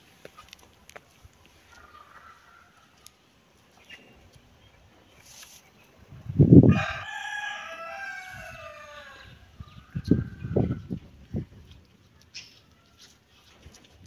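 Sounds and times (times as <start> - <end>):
rooster crowing: 6.7 - 10.7.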